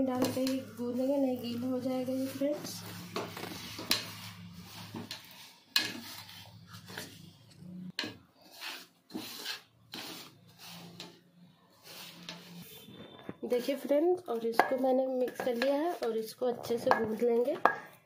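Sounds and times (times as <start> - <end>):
hands rubbing flour in bowl: 0.8 - 7.1, 8.4 - 11.1, 11.8 - 12.6.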